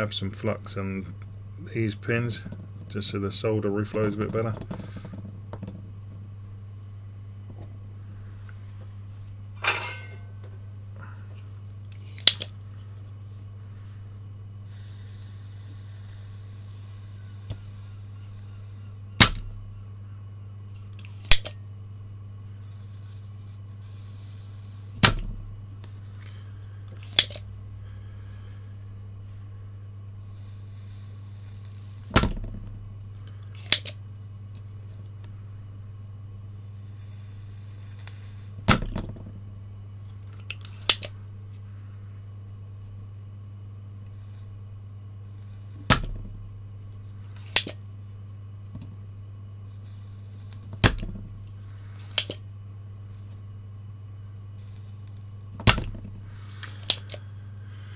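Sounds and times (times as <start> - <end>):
soft high hiss of soldering: 11.4 - 19.3, 22.5 - 25.1, 30.0 - 32.2, 36.4 - 38.7, 44.0 - 46.0, 49.5 - 53.4, 54.5 - 55.6, 56.2 - 57.9
desoldering pump snapping: 11.9 - 12.6, 20.8 - 21.6, 26.9 - 27.5, 33.1 - 34.7, 37.5 - 39.2, 40.3 - 41.2, 45.3 - 46.3, 47.4 - 47.8, 49.7 - 52.5, 54.6 - 57.3.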